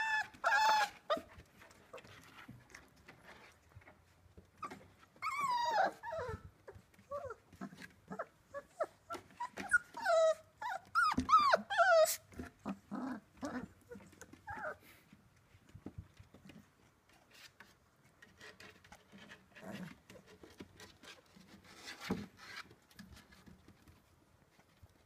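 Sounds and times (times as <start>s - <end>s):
puppies whining: 0.0s - 2.1s, 4.6s - 15.0s.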